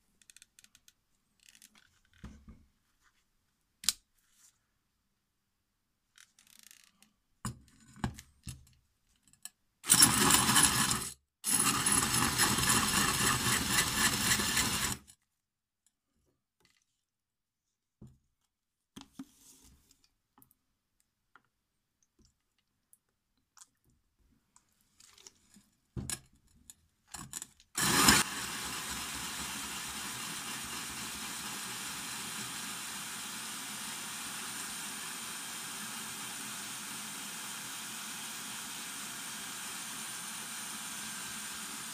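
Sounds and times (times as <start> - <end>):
power drill grinding into tile: 9.8 - 15.1, 27.8 - 41.9.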